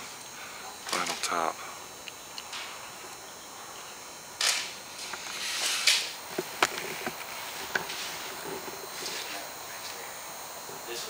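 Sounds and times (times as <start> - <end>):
sharp clicks: 4.4 - 7.9.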